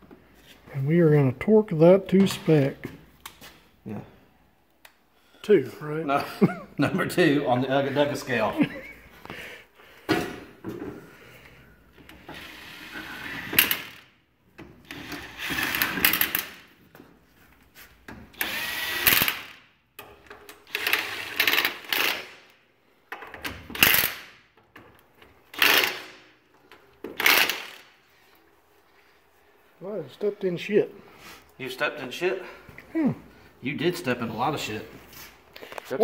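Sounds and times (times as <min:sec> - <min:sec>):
impact wrench hammering lug nuts: 0:14.9 - 0:16.7, 0:18.4 - 0:22.5, 0:25.5 - 0:26.3, 0:27.0 - 0:27.8.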